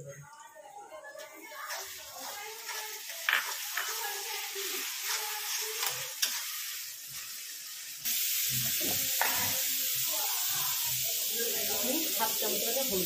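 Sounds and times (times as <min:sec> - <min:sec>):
tomatoes sizzling in hot oil: 0:01.2 - 0:13.0.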